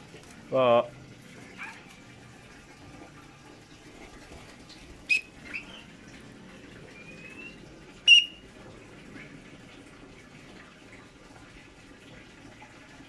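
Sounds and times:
bird squeaky calls: 5.1s - 5.9s, 7.0s - 8.4s
thin rising whistle: 7.0s - 8.4s.

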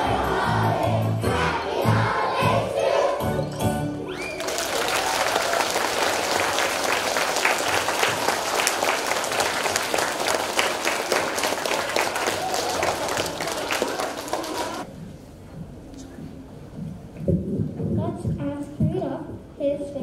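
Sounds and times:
audience applauding: 4.1s - 14.9s.

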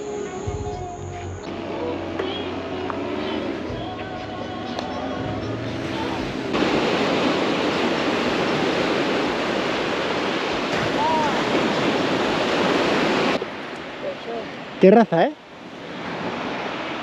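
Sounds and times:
waves washing on pebble shore: 5.8s - 17.0s.

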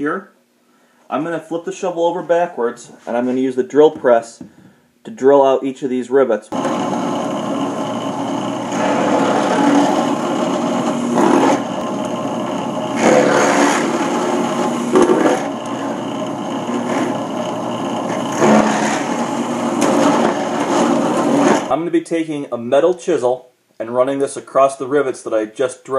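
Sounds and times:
drill bit grinding into rivets: 6.6s - 21.7s
drill press motor running: 6.6s - 21.7s.

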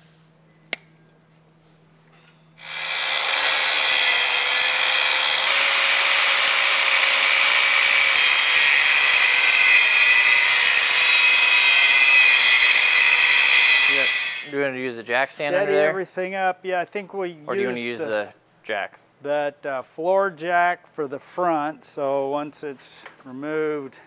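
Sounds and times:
angle grinder cutting steel: 2.6s - 14.6s.

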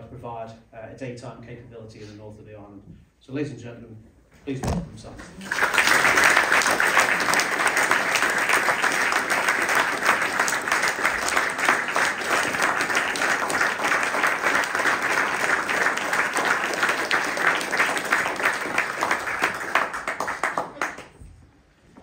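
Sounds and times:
audience applauding: 5.3s - 21.2s.

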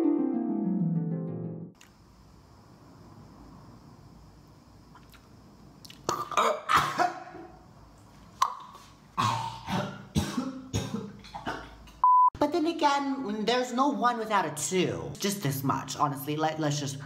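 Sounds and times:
man coughing and gagging: 6.1s - 7.6s, 9.2s - 11.8s.

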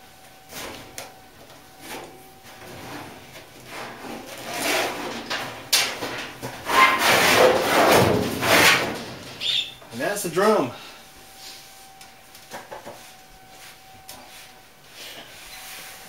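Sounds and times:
metal drum scraping: 1.9s - 9.8s.

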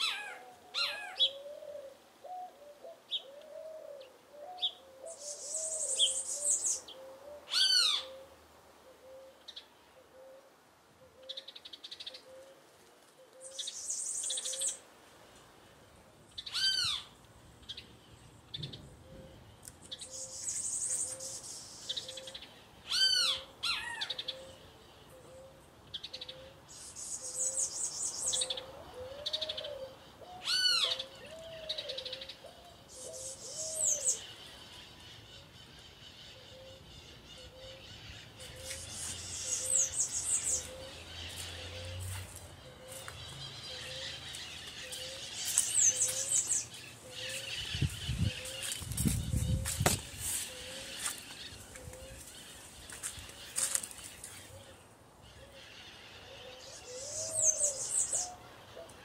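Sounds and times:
loud whistled bird calls: 55.4s - 58.4s.

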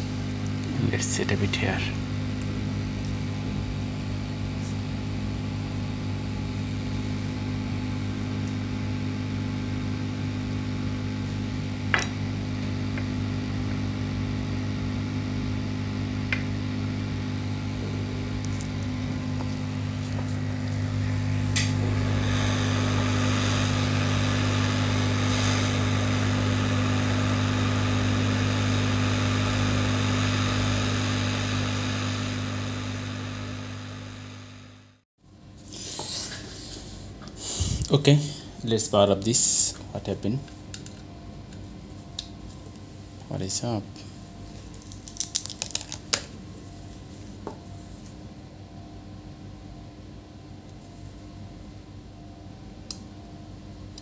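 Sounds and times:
hot air blower hissing: 0.0s - 5.8s, 6.4s - 35.0s, 35.7s - 38.6s
low fan hum: 0.0s - 54.0s.

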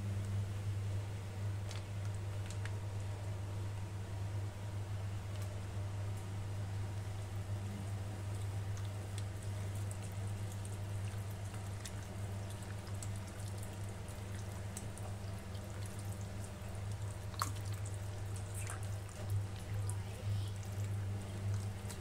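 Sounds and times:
steady low hum: 0.0s - 22.0s
wet squelches and clicks: 1.6s - 3.2s, 7.0s - 22.0s.

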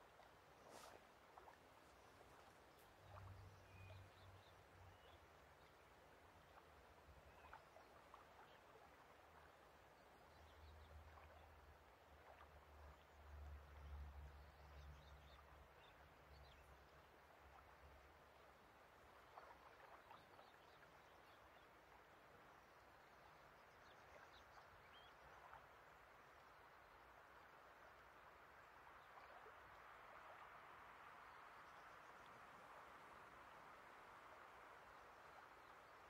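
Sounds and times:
soft outdoor wash: 0.0s - 36.0s.

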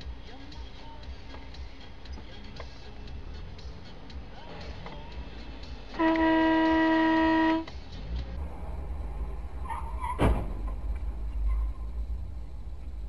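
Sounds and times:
car horn blast: 6.0s - 7.7s
sharp bang: 10.1s - 10.7s.

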